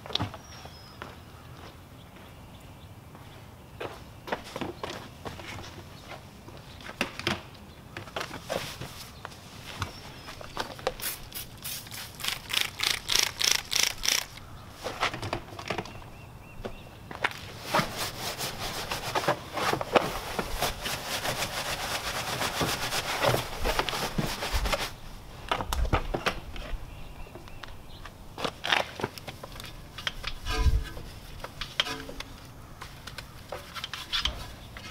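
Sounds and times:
brush scrubbing wet tire: 0:17.6 - 0:25.0.

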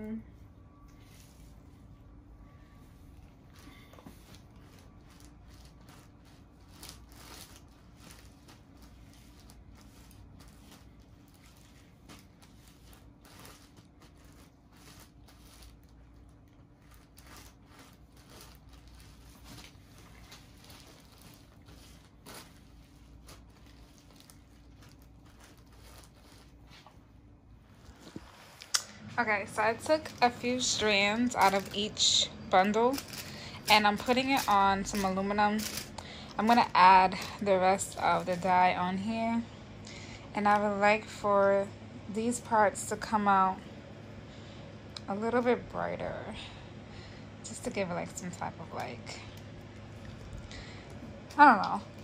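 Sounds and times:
faint low hum: 0:00.0 - 0:52.0
plastic sheet crinkling: 0:02.8 - 0:27.2, 0:27.8 - 0:39.4.

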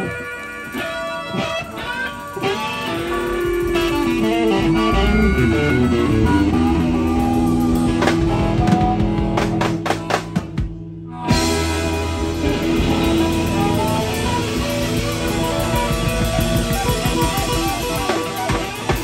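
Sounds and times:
harmonica playing held notes: 0:00.0 - 0:10.4, 0:11.1 - 0:19.0
rock band playing: 0:00.0 - 0:19.0.

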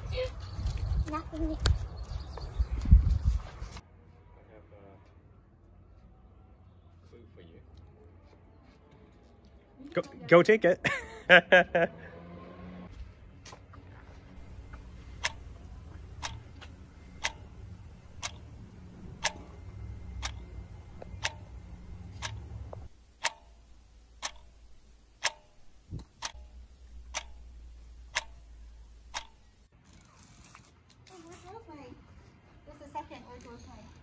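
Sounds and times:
clock ticking: 0:15.0 - 0:29.7.

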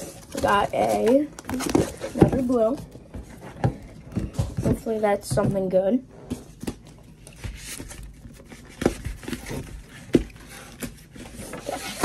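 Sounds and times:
cardboard rustling: 0:00.0 - 0:12.0.

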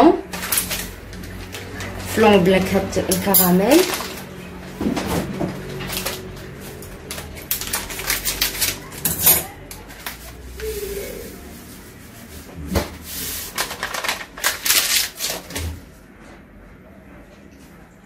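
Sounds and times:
foil sachet crinkling: 0:00.3 - 0:02.5, 0:03.5 - 0:04.8, 0:05.6 - 0:15.8.

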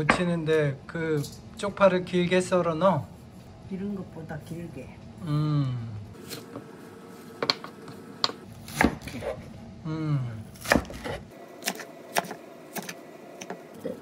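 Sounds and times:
knife chopping on wooden board: 0:07.4 - 0:09.4, 0:10.6 - 0:13.6.

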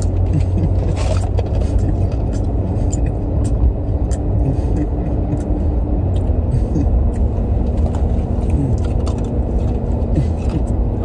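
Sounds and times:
car cabin road rumble: 0:00.0 - 0:11.0.

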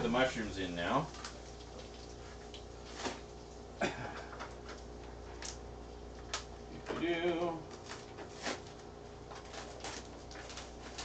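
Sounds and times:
kitchen background hum and hiss: 0:00.0 - 0:11.0.

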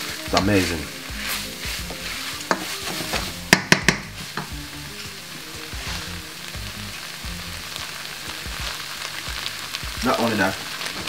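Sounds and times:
wooden spoon knocking on pan: 0:00.0 - 0:04.6
food sizzling in a saucepan: 0:00.0 - 0:11.0.

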